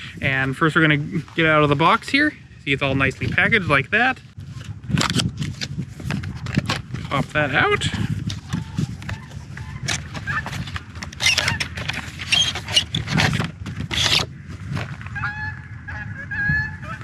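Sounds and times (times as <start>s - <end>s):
cardboard rustling and scraping: 4.4s - 15.2s
geese honking: 9.1s - 12.4s, 15.1s - 17.0s.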